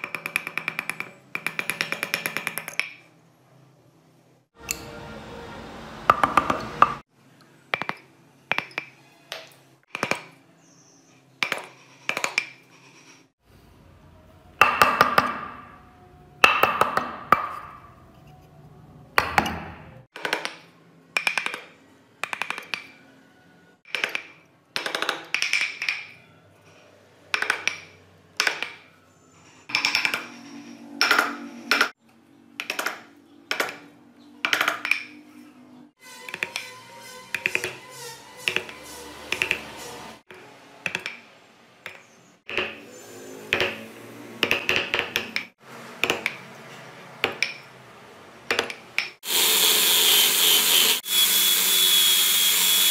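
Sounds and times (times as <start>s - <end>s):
chisel scraping cuts: 36.0s - 41.0s, 49.2s - 52.9s.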